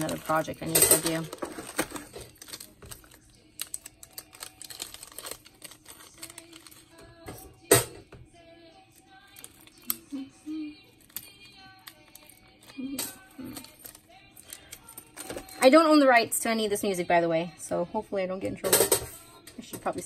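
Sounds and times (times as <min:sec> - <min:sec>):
plastic bag rustling: 0:00.0 - 0:07.5.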